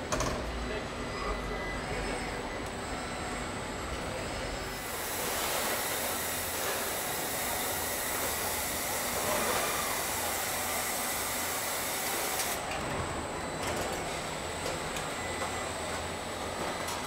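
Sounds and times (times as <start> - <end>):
hiss of welding machinery: 4.6 - 12.7.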